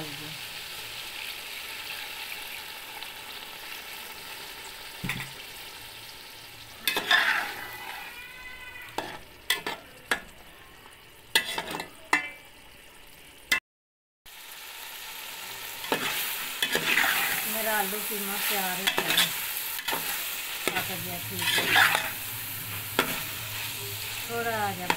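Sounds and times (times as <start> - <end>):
water sizzling in hot pot: 0.0 - 13.6, 14.3 - 24.9
metal spoon scraping pot: 6.8 - 8.2, 9.0 - 9.9, 11.3 - 12.4, 15.8 - 17.4, 18.8 - 24.9.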